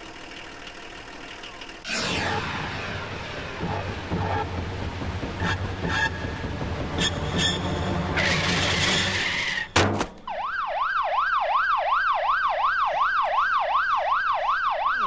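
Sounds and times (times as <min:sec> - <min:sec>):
van engine rumbling: 0:00.0 - 0:10.3
brakes screeching: 0:05.2 - 0:09.8
emergency siren wailing: 0:10.3 - 0:15.0.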